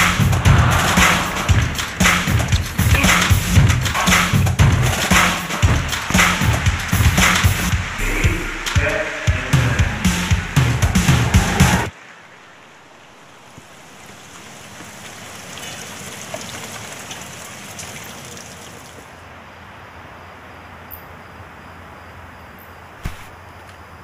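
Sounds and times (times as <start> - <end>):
music: 0.0 - 11.9
rain falling: 0.0 - 19.2.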